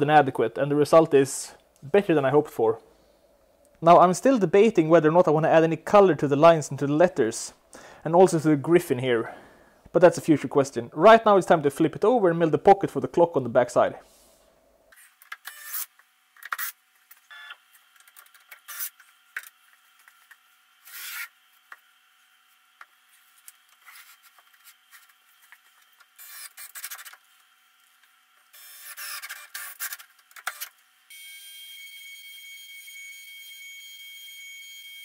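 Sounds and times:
router spindle high-pitched whine: 0:31.1 - 0:35.0.

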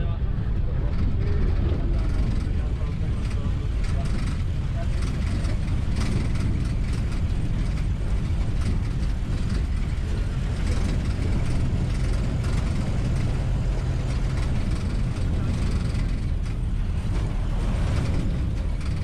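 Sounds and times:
truck engine drone: 0:00.0 - 0:19.0
body knocks and rattles: 0:02.0 - 0:19.0.

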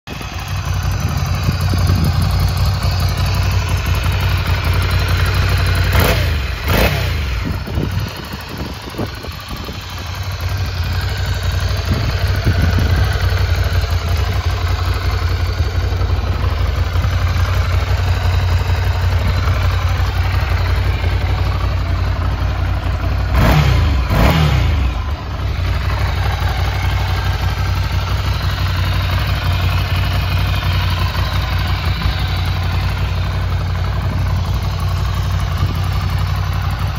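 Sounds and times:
motorcycle engine idling: 0:00.1 - 0:36.9
engine revving blips: 0:05.9 - 0:07.5, 0:23.3 - 0:25.0.

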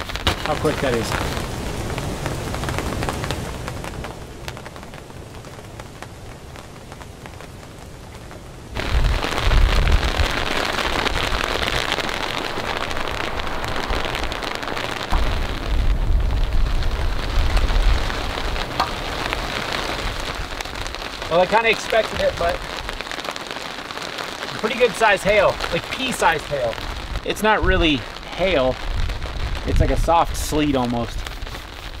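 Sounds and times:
soft hail pattering: 0:00.0 - 0:32.0
steady rain: 0:00.0 - 0:32.0
deep rumbling: 0:08.6 - 0:23.2.

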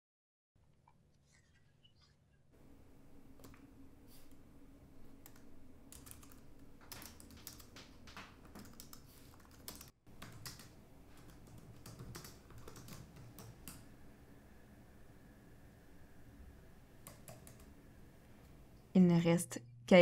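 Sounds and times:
typing on laptop keyboard: 0:05.2 - 0:13.8, 0:17.0 - 0:17.7.

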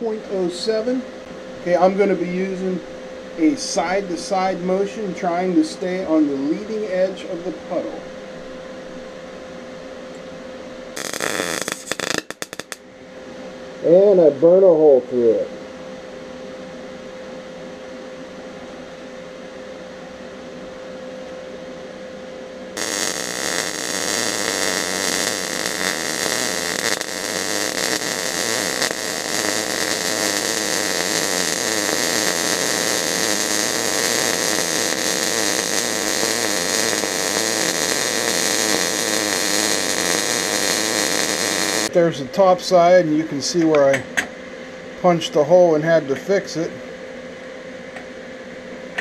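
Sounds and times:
machine hum: 0:00.0 - 0:14.6, 0:15.4 - 0:49.0
welding arc crackling: 0:11.0 - 0:12.8, 0:22.8 - 0:42.0.

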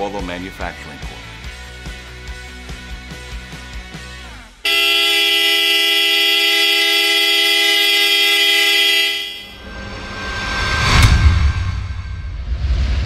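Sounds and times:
electric horn blast: 0:04.6 - 0:12.1.

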